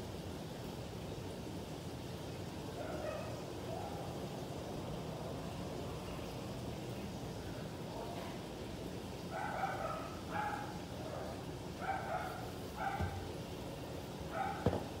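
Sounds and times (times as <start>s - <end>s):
dog barking: 2.8s - 4.1s, 9.3s - 13.3s, 14.3s - 14.8s
soft thump: 13.0s - 13.2s, 14.6s - 14.9s.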